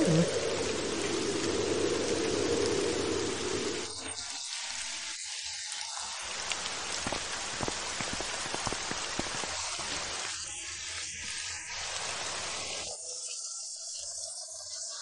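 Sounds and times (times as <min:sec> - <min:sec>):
raindrops ticking: 0:00.0 - 0:04.2, 0:06.3 - 0:10.3
rain falling: 0:00.0 - 0:12.9.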